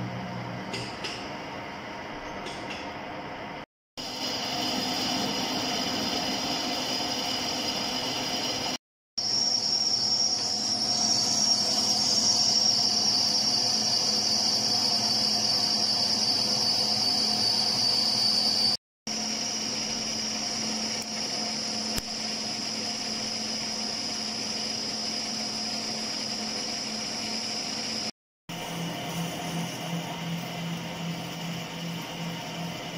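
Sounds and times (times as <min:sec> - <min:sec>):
lathe running hum: 0:03.0 - 0:32.9
cutting tool high-pitched whine: 0:04.0 - 0:32.9.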